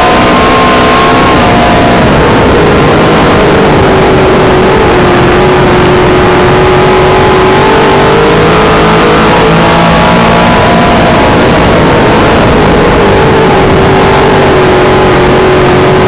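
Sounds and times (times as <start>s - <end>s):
race car engine revving: 0.0s - 16.0s.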